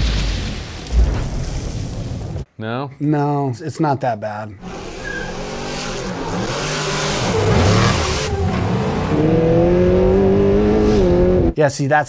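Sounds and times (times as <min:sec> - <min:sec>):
truck engine revving: 0:04.6 - 0:11.5.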